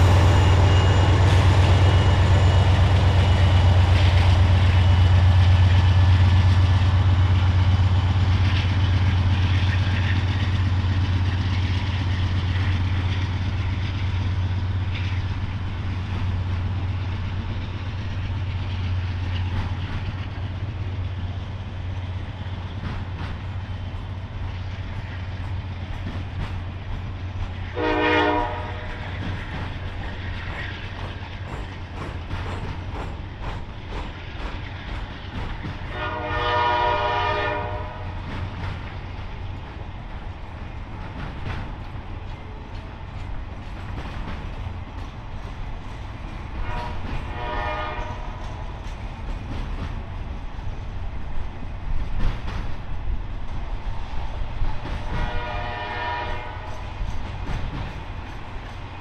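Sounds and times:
train rumbling by: 0.0s - 59.0s
locomotive air horn blasts: 27.8s - 29.0s, 35.9s - 38.2s, 46.6s - 48.4s, 55.2s - 56.7s.

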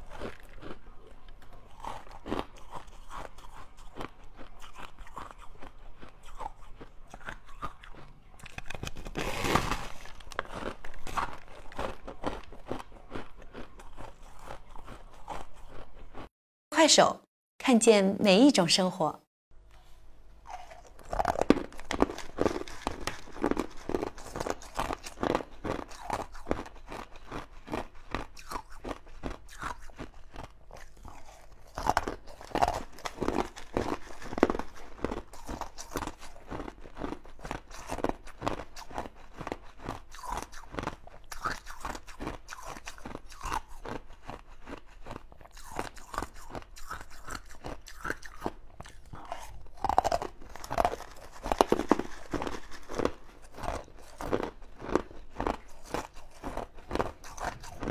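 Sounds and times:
crunching ice cubes: 0.0s - 16.2s, 20.5s - 57.9s.

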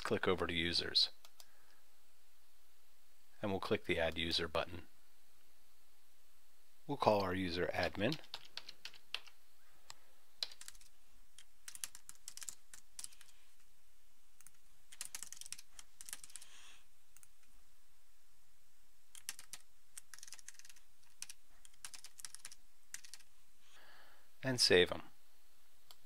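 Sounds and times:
keyboard typing: 8.0s - 9.4s, 10.4s - 13.3s, 14.4s - 16.5s, 19.1s - 23.3s.

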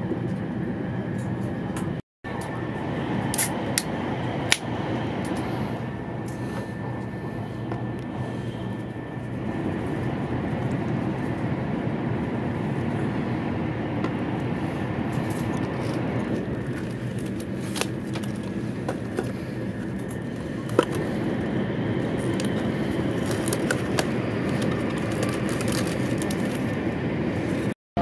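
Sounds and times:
train cabin low rumble: 0.0s - 28.0s.

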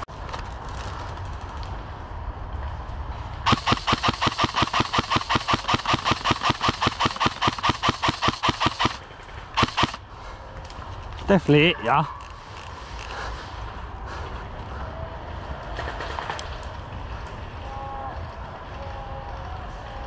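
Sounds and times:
airsoft rifle rapid shots: 3.5s - 9.0s, 9.6s - 10.0s.

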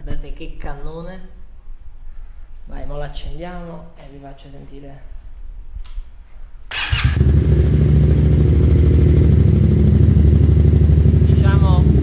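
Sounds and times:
motorcycle engine idling: 6.8s - 12.0s.

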